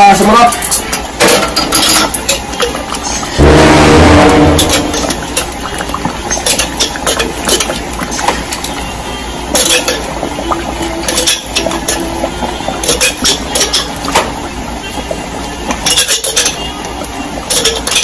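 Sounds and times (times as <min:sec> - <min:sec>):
metal spoon stirring stew in pan: 0:02.1 - 0:08.8
steady low hum: 0:03.2 - 0:07.0
spoon clinking and scraping pan: 0:09.5 - 0:10.1, 0:11.0 - 0:12.1, 0:12.8 - 0:14.0, 0:15.8 - 0:16.7.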